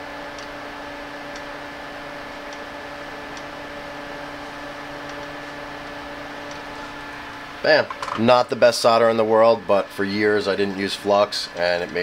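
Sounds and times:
electrical hum with hiss: 0.0s - 12.0s
soldering iron ticking: 0.3s - 0.6s, 1.3s - 1.5s, 2.4s - 3.6s, 4.7s - 6.7s, 11.4s - 12.0s.

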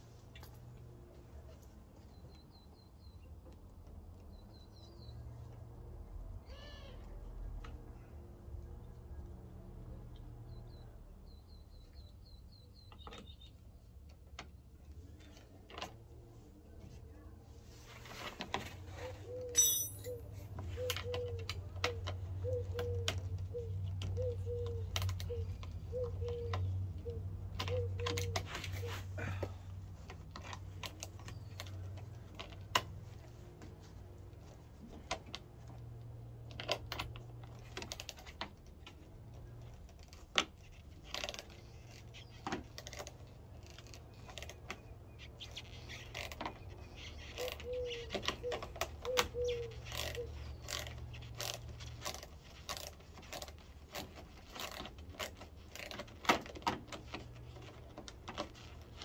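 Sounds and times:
clinks of hand tools: 19.5s - 20.3s.

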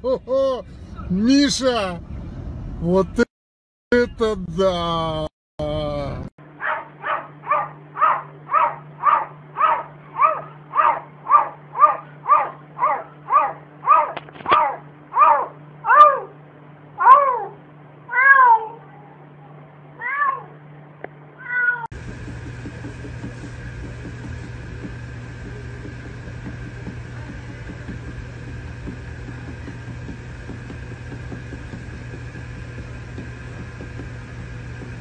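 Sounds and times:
cat meowing: 17.0s - 18.9s, 20.0s - 20.5s, 21.4s - 21.9s
steady hum: 18.9s - 35.0s.

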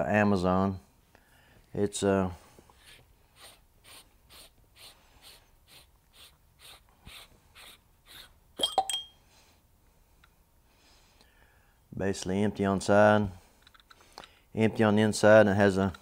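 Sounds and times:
sharp clicks of parts separating: 13.6s - 14.4s.

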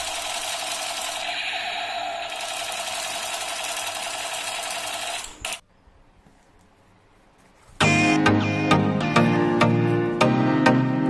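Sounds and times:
toy machine gun rattle: 0.0s - 5.6s.

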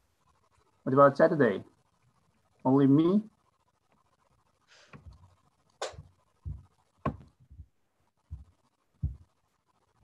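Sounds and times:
soft clicks and dull knocks: 6.4s - 9.4s.

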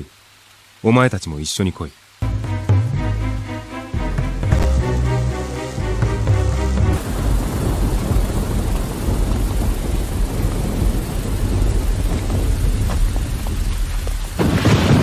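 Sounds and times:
rain falling: 0.0s - 15.0s
low rumble of thunder: 7.0s - 15.0s
sharp thunderclap: 7.0s - 15.0s.

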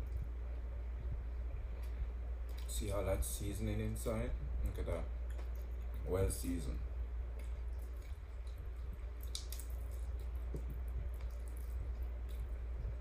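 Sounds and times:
steady low hum: 0.0s - 13.0s
wet chewing and tearing: 1.8s - 2.7s, 7.3s - 12.9s.

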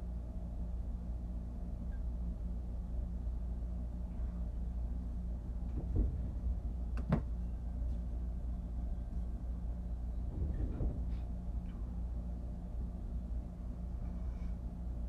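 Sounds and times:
low room hum: 0.0s - 15.0s
soft knocks of objects handled: 5.6s - 8.2s.

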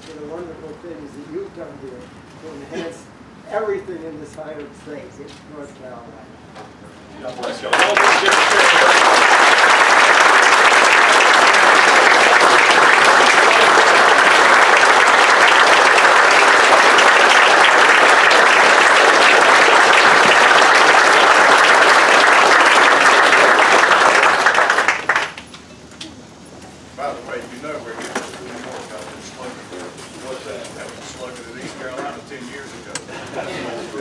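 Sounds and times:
large audience applauding: 7.4s - 25.5s.

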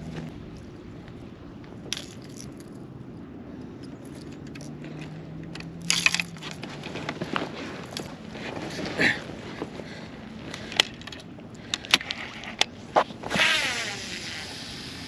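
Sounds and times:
low steady hum: 0.0s - 15.0s
gear clattering and rattling: 1.8s - 13.6s.

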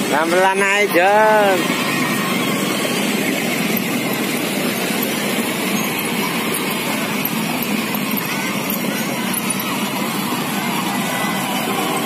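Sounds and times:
electric motor drone: 0.0s - 12.0s
plastic wheels rolling on asphalt: 0.1s - 12.0s.

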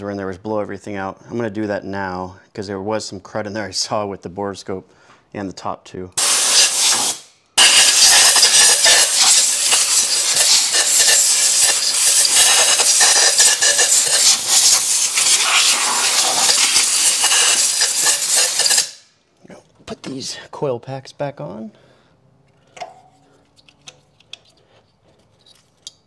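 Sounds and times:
compressed air blow gun hissing: 6.2s - 19.1s.

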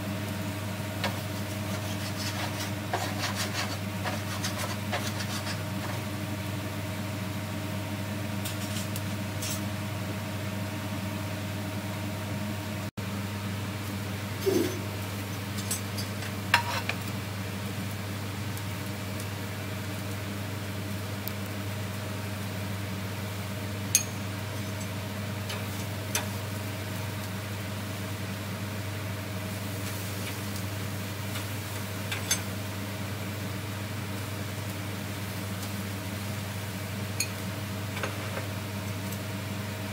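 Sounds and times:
gas grill hum and hiss: 0.0s - 39.9s
utensils clinking on grill grate: 14.6s - 17.1s, 23.9s - 26.3s, 32.1s - 32.5s, 37.2s - 37.4s.

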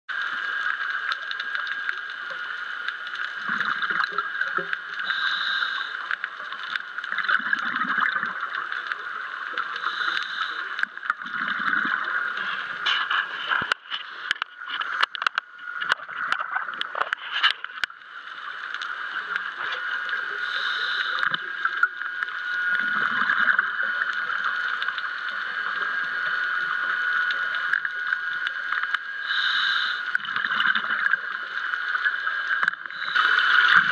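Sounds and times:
gurgle of exhaled bubbles: 0.1s - 33.9s
steady high hum: 0.1s - 33.9s
regulator inhalation hiss: 5.0s - 6.2s, 9.7s - 10.9s, 20.3s - 21.4s, 29.2s - 30.3s, 32.8s - 33.9s.

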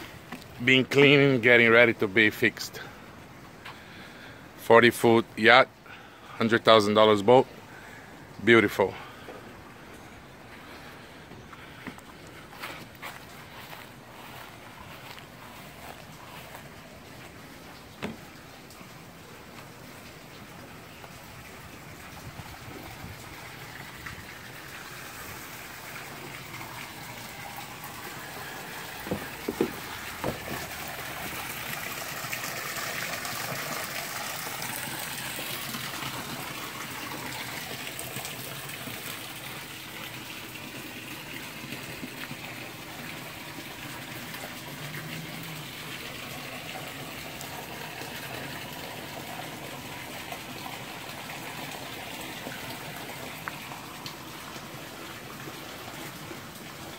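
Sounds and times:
running water gushing: 0.0s - 56.9s
sharp knocks: 29.0s - 30.7s.

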